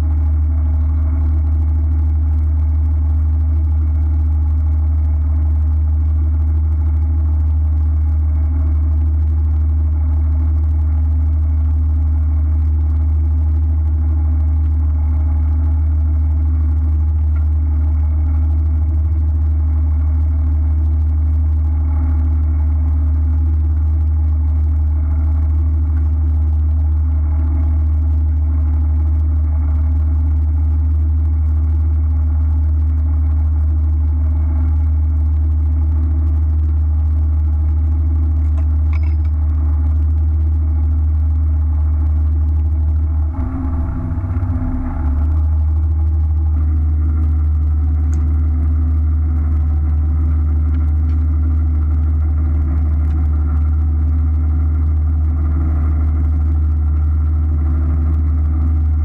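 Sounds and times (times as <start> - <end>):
boat engine idling: 43.1 - 50.6.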